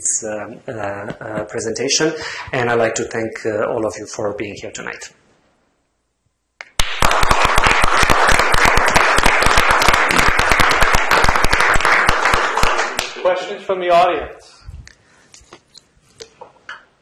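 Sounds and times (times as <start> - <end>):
audience applauding: 6.8 - 13.2.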